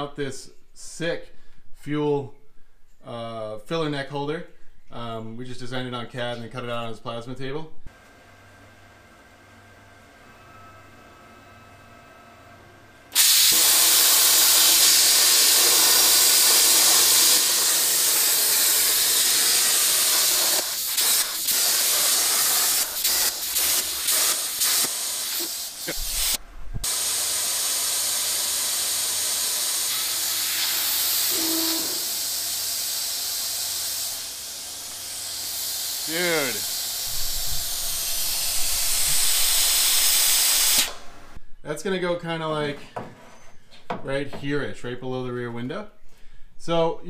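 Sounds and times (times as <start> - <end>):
plasma torch hissing: 13.1 - 41.1.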